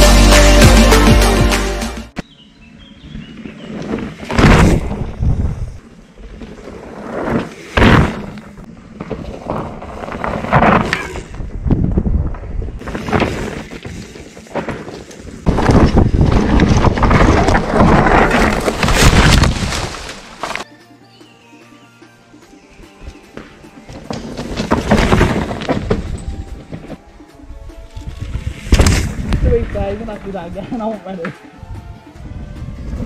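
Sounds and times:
wind buffeting microphone: 0:11.3 - 0:12.9
tyres crunching over dirt and stones: 0:12.3 - 0:20.7, 0:23.1 - 0:27.1.

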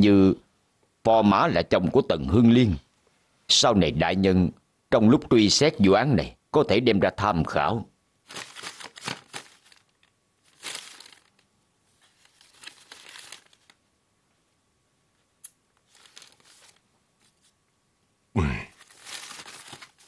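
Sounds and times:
paper rustling: 0:08.3 - 0:13.8, 0:15.8 - 0:17.6, 0:18.7 - 0:20.0.

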